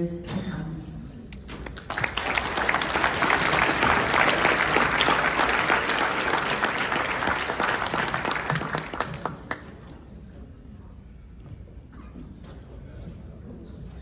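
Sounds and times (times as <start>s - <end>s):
audience applauding: 1.6s - 9.8s.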